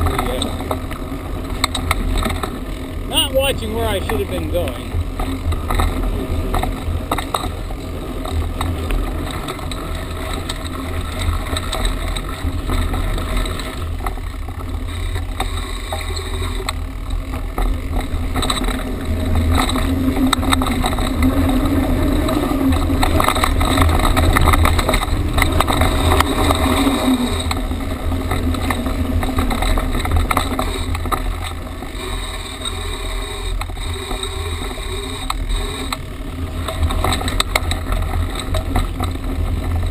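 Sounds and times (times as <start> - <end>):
bike rattling over rough ground: 0.0 - 39.9
wind rumbling on microphone: 0.0 - 39.9.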